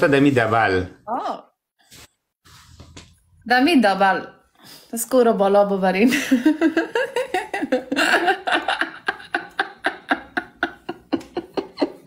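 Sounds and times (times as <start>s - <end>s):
man and woman laughing: 6.1s - 12.0s.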